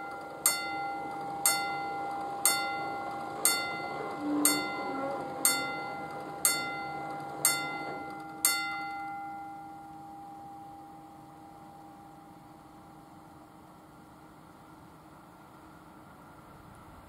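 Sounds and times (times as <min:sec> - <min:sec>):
level-crossing bell ringing: 0:00.0 - 0:12.7
faint steady hum: 0:00.0 - 0:17.0.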